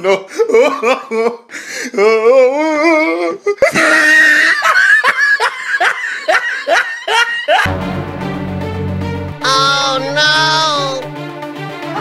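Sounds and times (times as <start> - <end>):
loud hearty laughter: 0.0 - 1.5, 3.5 - 7.7.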